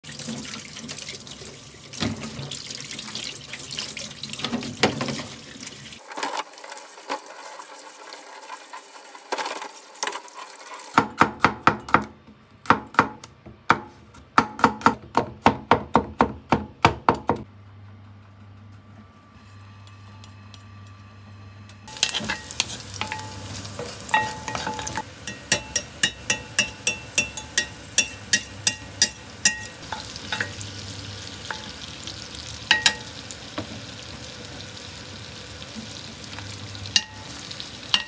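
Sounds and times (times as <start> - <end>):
tap water running and splashing: 0.0 - 11.0, 28.3 - 38.0.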